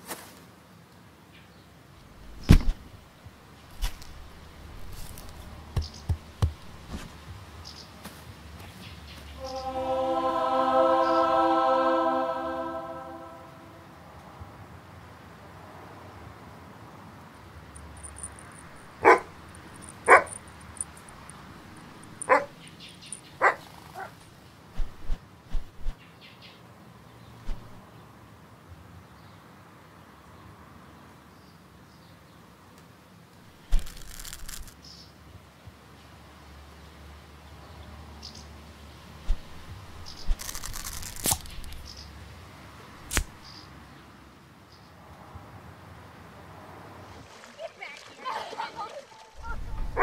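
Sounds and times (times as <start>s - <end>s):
soft thumps and knocks: 2.4s - 2.9s, 5.0s - 7.4s
short high chirps: 9.4s - 13.8s
dog barking: 19.0s - 19.4s, 20.1s - 20.3s, 22.3s - 22.5s, 23.4s - 24.1s.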